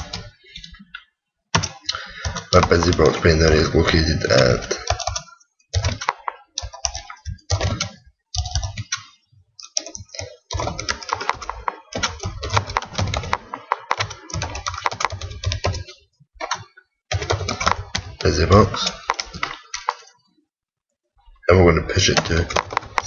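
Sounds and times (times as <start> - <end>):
typing on computer keyboard: 0.0 - 20.2, 22.1 - 23.0.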